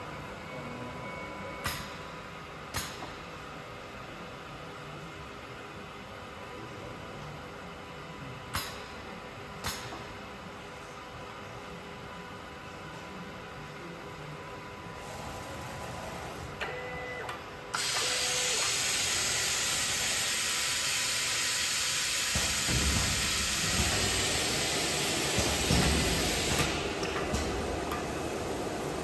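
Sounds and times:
air hissing: 17.8 - 28.9.

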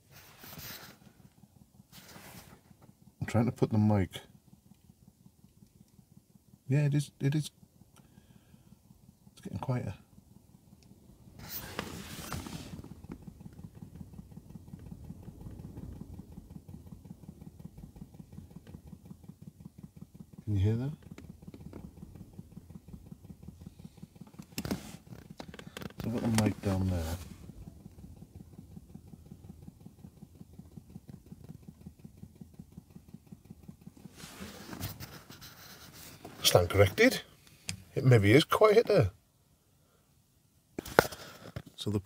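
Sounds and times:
microphone handling rustle: 1.9 - 2.8, 11.4 - 14.1, 24.3 - 27.6, 34.0 - 37.9
fuel pump clicking: 10.7 - 39.0.

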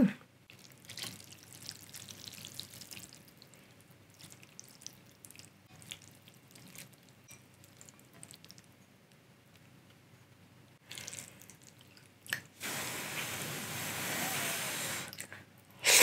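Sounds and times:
wet drips: 0.5 - 8.8.

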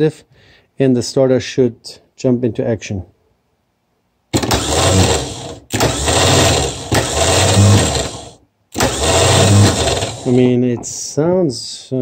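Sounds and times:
starter motor whirring: 4.3 - 10.4.

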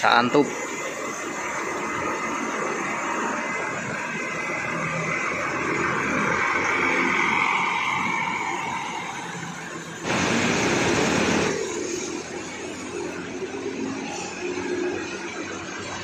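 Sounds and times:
bus engine passing: 0.0 - 16.0.

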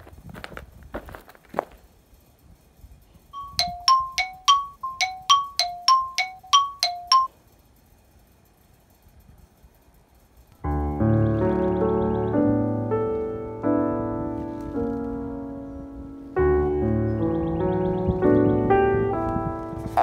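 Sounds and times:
comic plinking notes: 3.4 - 7.3
piano music: 3.4 - 7.3, 10.6 - 20.0.

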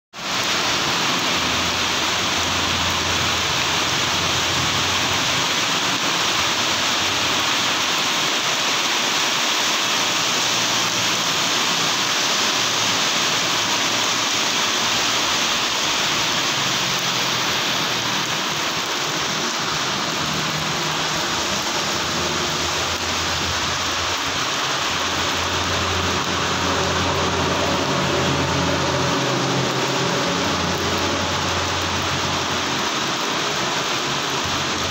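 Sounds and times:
heavy rain on road: 0.1 - 34.9
vehicles passing on wet road: 0.1 - 34.9.

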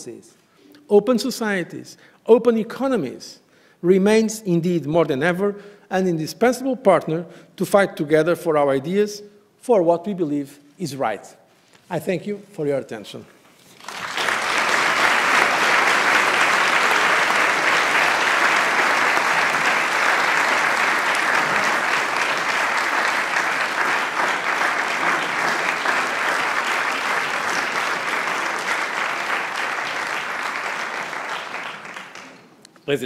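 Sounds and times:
audience applauding: 13.6 - 32.6.

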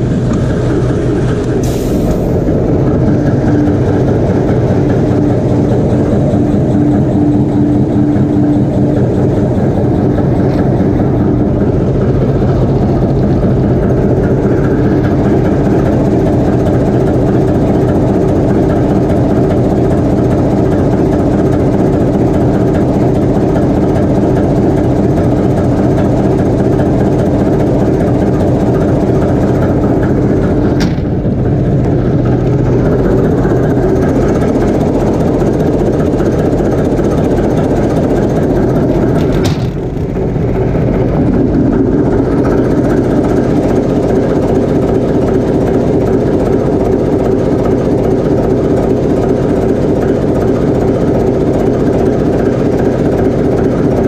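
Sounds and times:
diesel locomotive engine running: 0.0 - 54.0.

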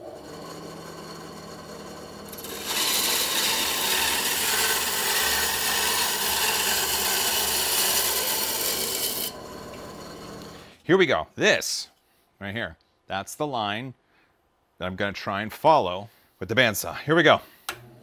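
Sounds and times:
bandsaw motor running: 0.0 - 10.6
bandsaw blade cutting wood: 0.0 - 10.7.

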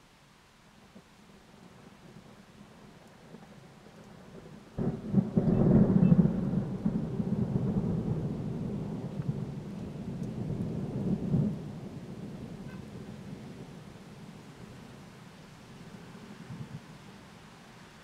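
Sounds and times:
thunder crack and rumble: 1.6 - 14.8.

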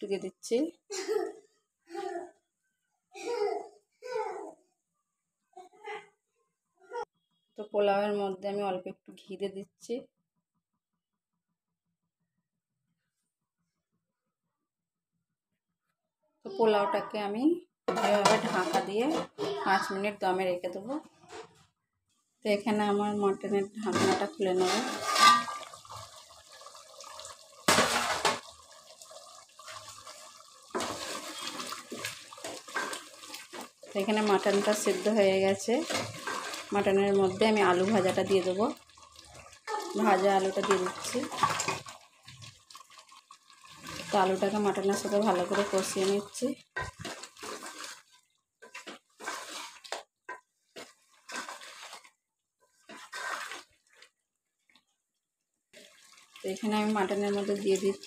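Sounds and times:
spatula scraping a metal pot: 17.9 - 19.6, 23.8 - 26.2, 29.6 - 43.0, 43.6 - 54.0
metal lid clattering: 23.9 - 25.7
liquid bubbling and dripping: 25.4 - 39.7, 40.3 - 58.0.

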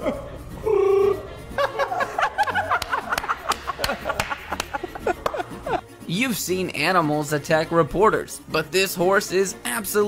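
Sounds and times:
people laughing and giggling: 0.0 - 5.9
background music: 0.0 - 10.0.

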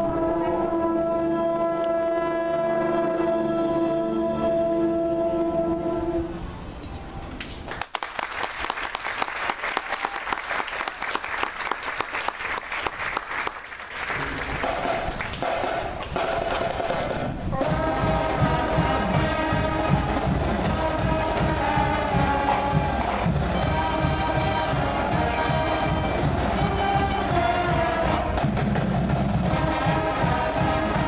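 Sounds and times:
brass sustained chords: 0.0 - 6.8, 17.6 - 31.0
crowd applause: 7.7 - 16.6
marching band low drum beat: 14.2 - 31.0.

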